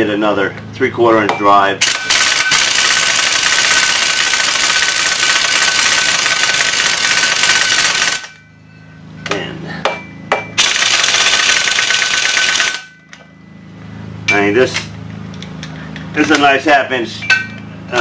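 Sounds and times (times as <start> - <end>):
pneumatic impact wrench hammering: 1.8 - 8.4, 10.3 - 13.0.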